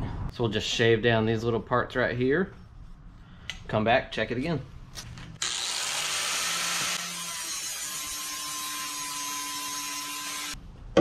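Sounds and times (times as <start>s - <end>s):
angle grinder grinding steel: 5.4s - 10.6s.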